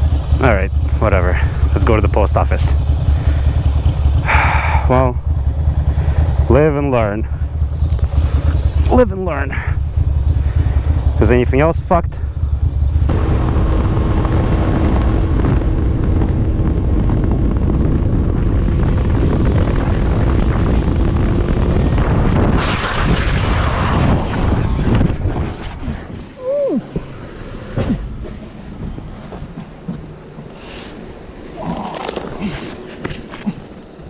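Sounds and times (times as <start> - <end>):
motorcycle engine running: 0.0 - 22.6, 24.6 - 33.8
wind noise on microphone: 12.2 - 30.0.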